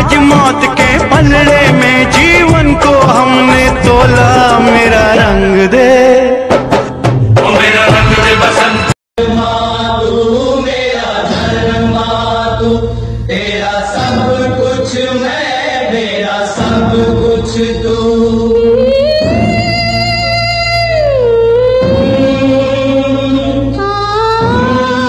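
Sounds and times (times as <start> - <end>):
voices singing in chorus: 7.4 - 25.0.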